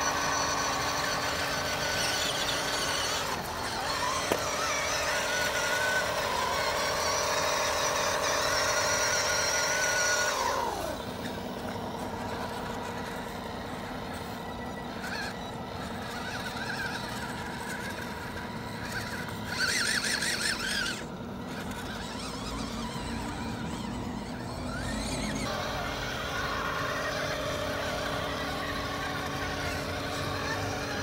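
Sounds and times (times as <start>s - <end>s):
high-pitched squeal: 0.0s - 31.0s
rc truck motors whining: 0.0s - 31.0s.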